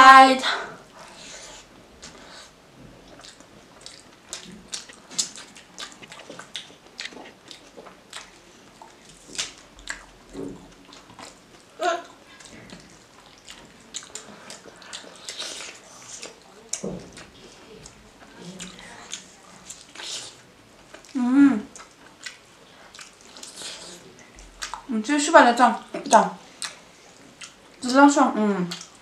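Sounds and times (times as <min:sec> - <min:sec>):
chewing and biting food: 0:02.0 - 0:24.9, 0:26.0 - 0:27.8.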